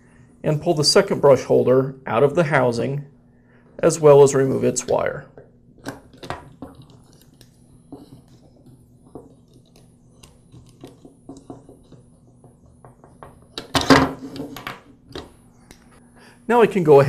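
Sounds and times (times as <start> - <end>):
clicks and scrapes of small parts: 5.8 - 12.8.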